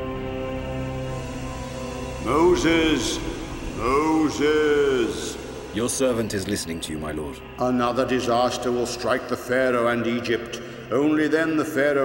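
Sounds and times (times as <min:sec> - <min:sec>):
soft musical drone: 0:00.0 - 0:12.0
man calling out: 0:02.2 - 0:06.8.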